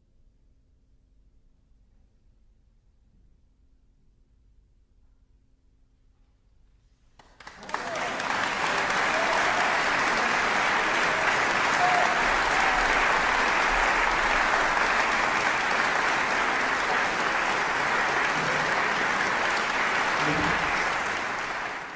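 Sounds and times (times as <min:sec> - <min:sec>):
audience applauding: 0:07.2 - 0:21.9.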